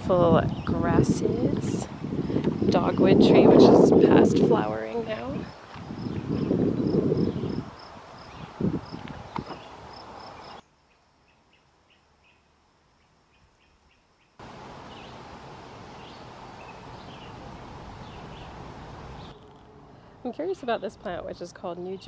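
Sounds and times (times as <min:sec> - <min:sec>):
birds chirping: 0:00.0 - 0:12.5, 0:13.3 - 0:22.0
steady background hiss: 0:07.2 - 0:21.8.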